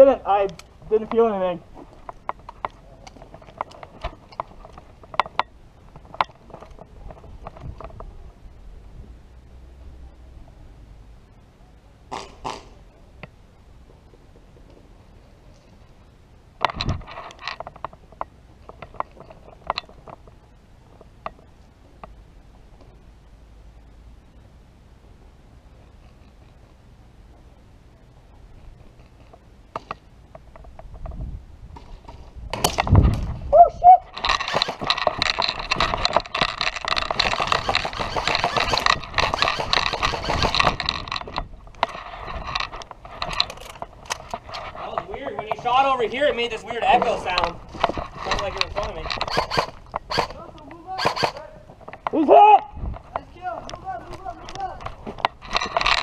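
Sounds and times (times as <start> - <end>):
airsoft rifles firing bursts: 37.0 - 40.5, 49.2 - 51.4
airsoft gun cracks and clicks: 48.6 - 52.1.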